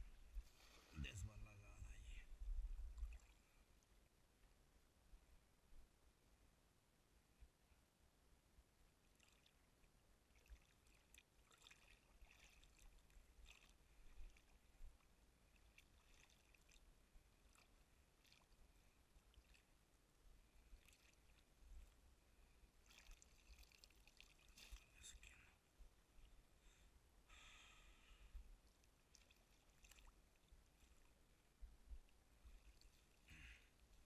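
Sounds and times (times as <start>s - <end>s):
water lapping against boat: 10.3s - 19.7s, 20.6s - 22.0s, 22.8s - 25.4s, 28.6s - 31.2s.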